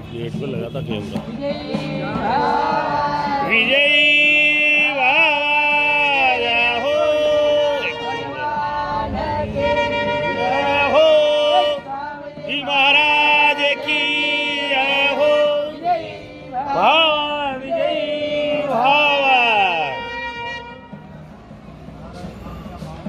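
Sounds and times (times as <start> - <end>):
wind instrument melody: 3.5 - 21.3.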